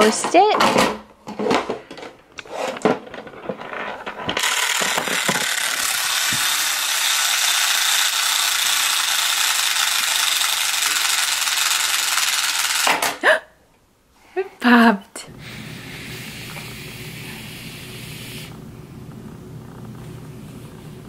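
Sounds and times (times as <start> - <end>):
toy timer whirring: 4.4 - 13.0.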